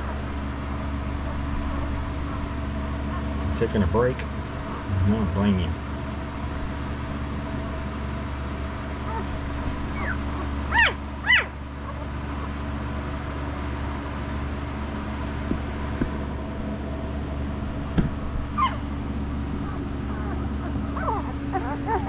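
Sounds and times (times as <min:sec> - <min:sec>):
steady low hum: 0:00.0 - 0:22.0
puppies squealing: 0:08.9 - 0:12.6, 0:18.4 - 0:22.0.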